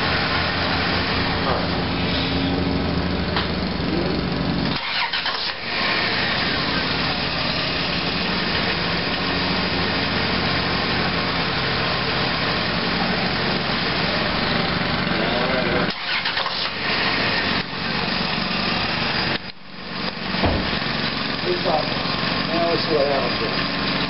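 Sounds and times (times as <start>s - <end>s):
van engine running: 0.0s - 24.0s.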